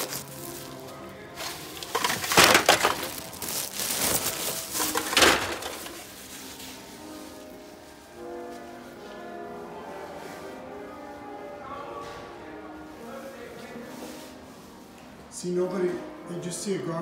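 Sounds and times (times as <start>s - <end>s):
plastic bin liner crinkling: 0.0s - 6.8s.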